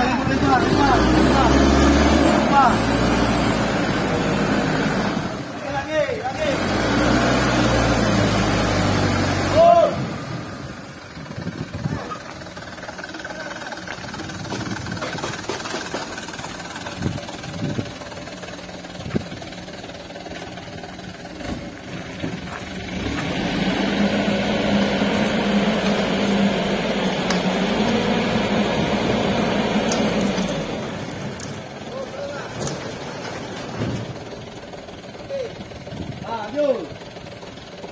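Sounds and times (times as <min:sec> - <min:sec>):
truck diesel engine running: 0:00.0 - 0:37.9
engine knocks: 0:11.1 - 0:23.4, 0:27.1 - 0:37.9.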